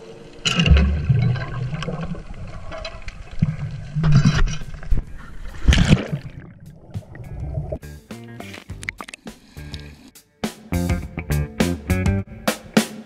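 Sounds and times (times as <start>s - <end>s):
deep rumble of water movement: 0.0s - 7.8s
muffled underwater water sloshing: 0.0s - 7.8s
water splashing: 0.0s - 7.8s.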